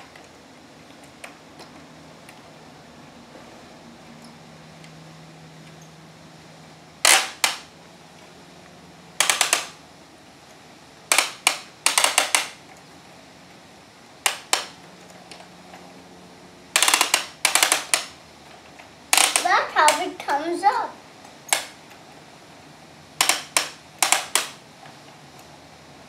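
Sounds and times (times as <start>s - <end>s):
toy crane winch clicking: 7.0s - 7.7s, 9.2s - 9.8s, 11.1s - 12.6s, 14.2s - 15.5s, 16.8s - 18.2s, 19.1s - 20.5s, 21.5s - 21.8s, 23.2s - 24.6s.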